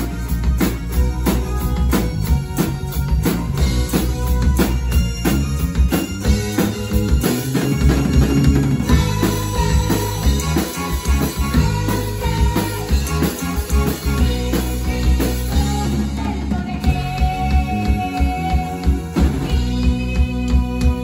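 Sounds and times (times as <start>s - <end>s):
keyboard: 0.0s - 21.0s
girl singing: 8.9s - 21.0s.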